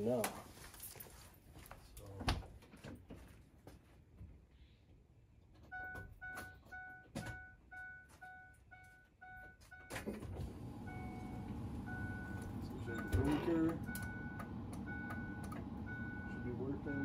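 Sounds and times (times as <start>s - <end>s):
dashboard warning chime dinging: 5.7s - 17.0s
steady low van noise: 10.4s - 17.0s.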